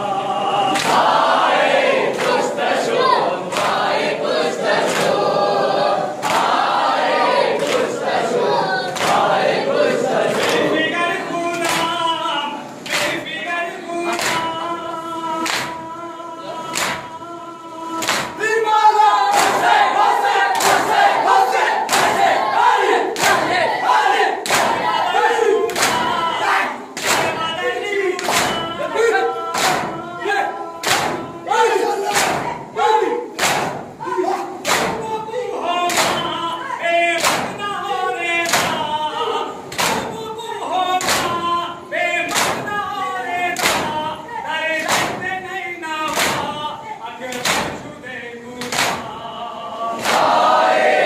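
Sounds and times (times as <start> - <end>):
sung lament: 0.0 - 6.2, 6.8 - 51.0
men chanting in unison: 0.0 - 51.0
hands beating chests: 18.0 - 18.4, 25.7 - 26.3, 28.2 - 28.8, 29.5 - 30.0, 30.8 - 31.3, 32.0 - 32.6, 33.4 - 34.0, 34.6 - 35.2, 35.9 - 36.4, 37.2 - 37.6, 38.4 - 39.0, 39.7 - 40.2, 41.0 - 41.5, 42.3 - 42.8, 43.6 - 44.1, 44.8 - 45.4, 46.1 - 46.6.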